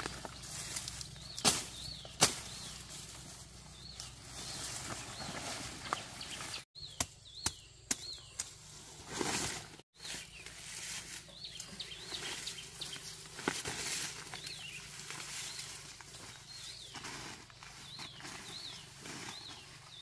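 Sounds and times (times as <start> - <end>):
machete chopping: 1.4 - 2.6.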